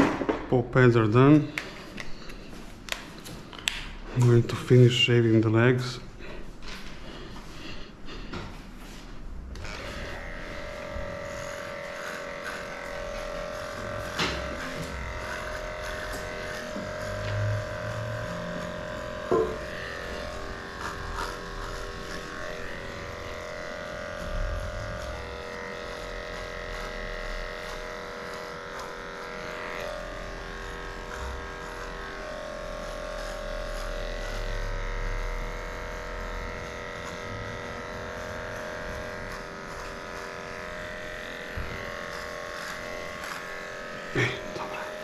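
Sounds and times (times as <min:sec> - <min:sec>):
electric pet clippers running: 0:09.4 - 0:45.0.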